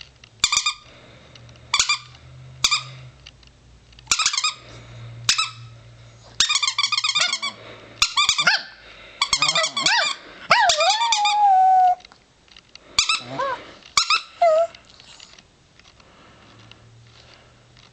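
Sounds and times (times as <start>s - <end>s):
squeaky toy squeaking: 0.4s - 0.9s, 1.7s - 3.0s, 4.1s - 4.6s, 5.3s - 5.7s, 6.4s - 12.0s, 13.0s - 14.7s
dog howling: 9.4s - 12.0s, 13.2s - 13.6s, 14.4s - 14.8s.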